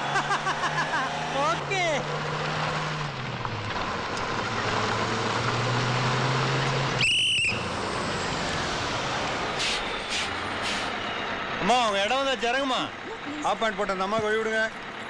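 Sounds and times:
bus engine running: 0.0 - 15.0
road noise: 0.0 - 15.0
shrill whistle: 7.0 - 7.7.

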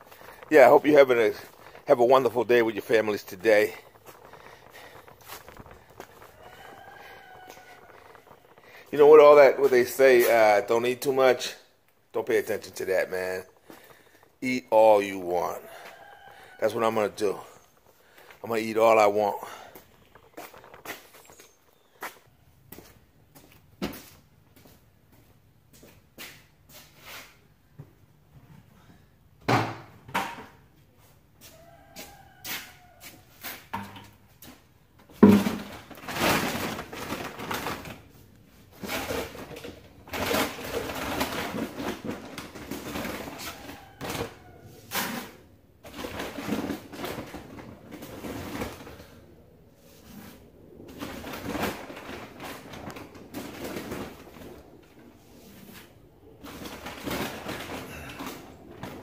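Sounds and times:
knocks and thuds of feed bags: 0.0 - 10.7, 35.1 - 49.2, 50.9 - 59.0.

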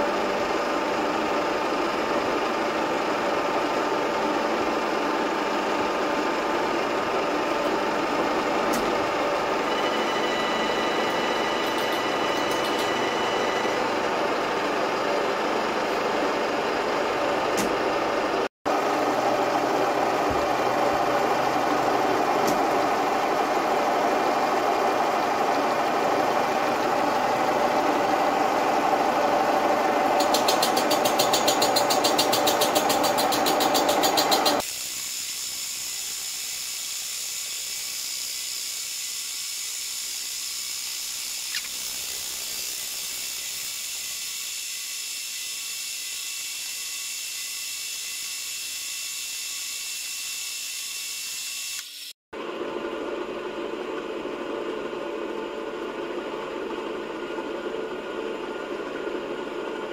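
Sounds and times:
spindle high tone: 9.4 - 14.5
milling cutter grinding metal: 30.1 - 34.7
fast high ticking: 30.2 - 34.6.

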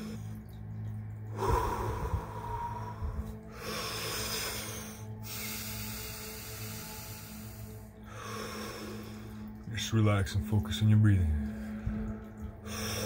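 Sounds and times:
background music: 0.0 - 13.0
man breathing forcefully: 1.4 - 9.3.

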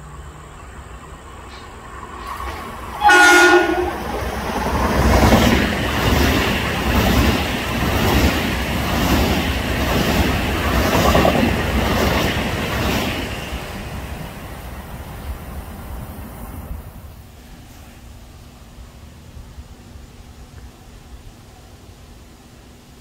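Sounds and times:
train wheels rumbling and clacking: 1.4 - 18.2
train horn blast: 3.0 - 4.2.

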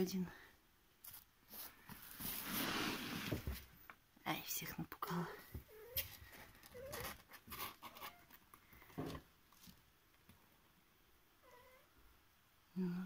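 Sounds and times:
faint scratchy rustling: 1.0 - 4.0, 5.4 - 10.7.

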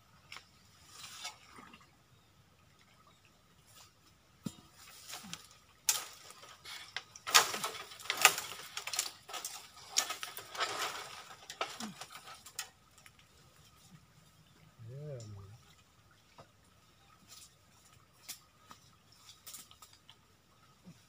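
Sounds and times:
leafy branches rustling: 3.7 - 21.0.

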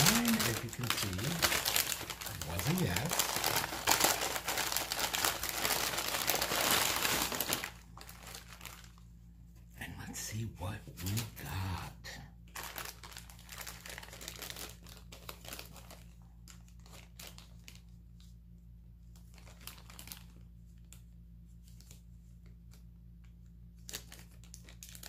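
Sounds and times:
packaging crinkling and tearing: 0.0 - 9.1, 12.5 - 18.2, 19.1 - 21.0, 23.6 - 25.0
low steady hum: 0.0 - 25.0.

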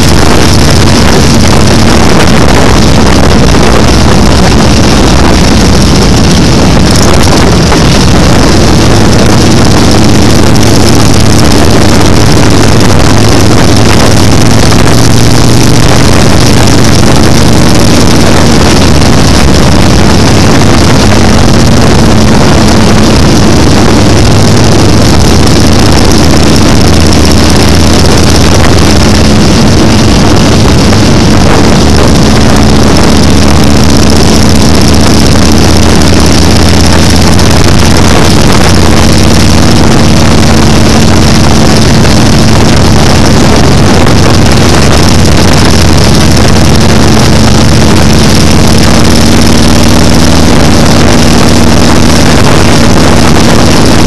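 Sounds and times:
motorcycle engine cruising: 0.0 - 54.0
wind rushing over microphone: 0.0 - 54.0.

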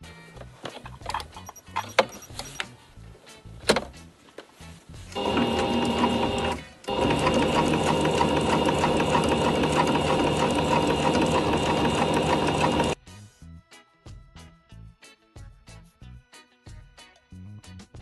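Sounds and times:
faint background music: 0.0 - 18.0
sewing machine stitching: 5.1 - 13.0.

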